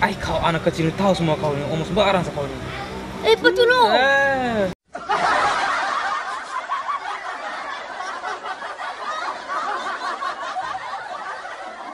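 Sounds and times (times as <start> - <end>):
canned laughter: 4.9 - 11.9.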